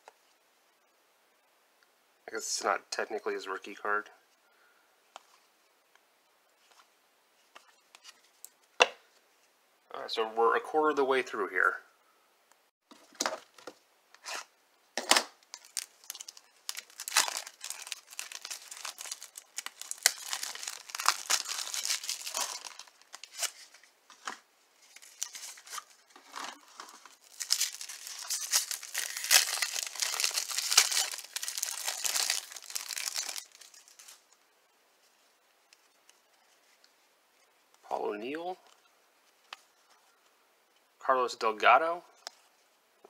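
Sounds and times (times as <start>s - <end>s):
wrapper tearing and crinkling: 15.5s - 23.8s, 24.8s - 34.3s.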